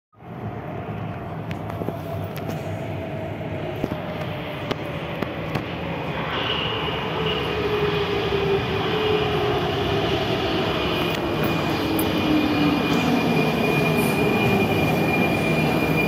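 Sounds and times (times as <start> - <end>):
metro train motor whine: 0.3 - 16.0
high steady whistle: 11.4 - 16.0.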